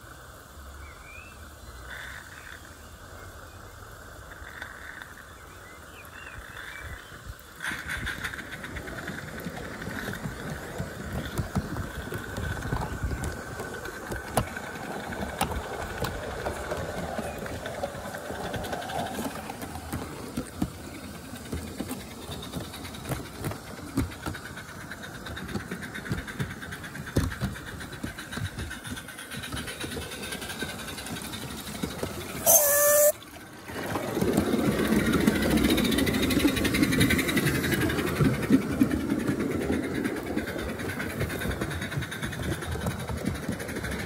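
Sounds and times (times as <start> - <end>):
wagon wheels clattering on rails: 6.4 - 44.0
steam locomotive exhaust chuffs: 7.2 - 44.0.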